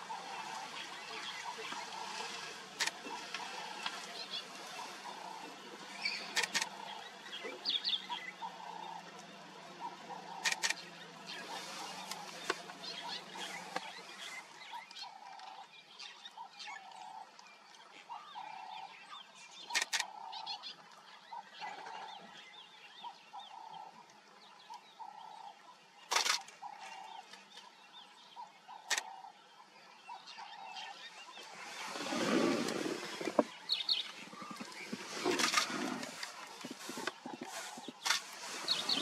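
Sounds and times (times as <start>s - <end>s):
sharp clicks: 28.9s - 29.1s.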